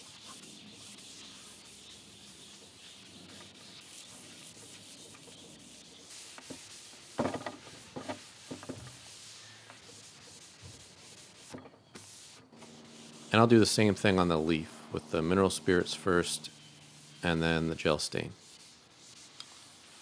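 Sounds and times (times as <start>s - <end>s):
cloth rag rubbing wood: 0.0s - 20.0s.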